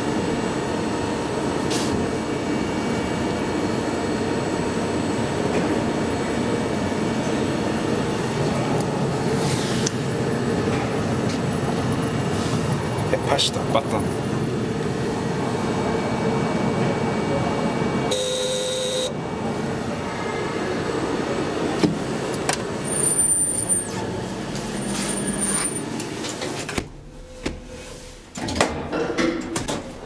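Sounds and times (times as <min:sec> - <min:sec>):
elevator running noise: 0:00.0 - 0:30.0
short buzzing tone: 0:18.1 - 0:19.1
faint high squeals: 0:22.8 - 0:26.0.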